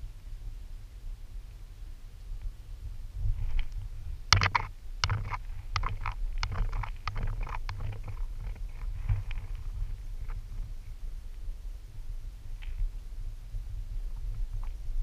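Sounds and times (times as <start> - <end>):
sharp clicks and light taps: 3.6 - 9.5.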